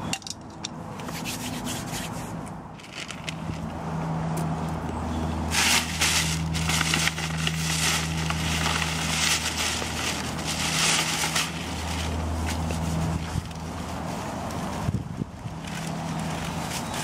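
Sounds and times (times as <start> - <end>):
crunching and rustling: 2.8 - 3.8, 5.5 - 17.0.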